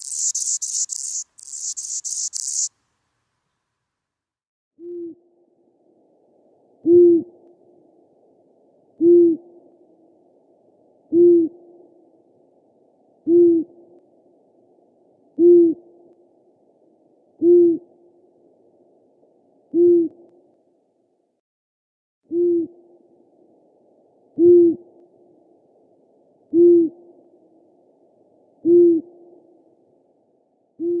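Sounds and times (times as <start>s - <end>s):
owl hooting: 0.0s - 2.7s.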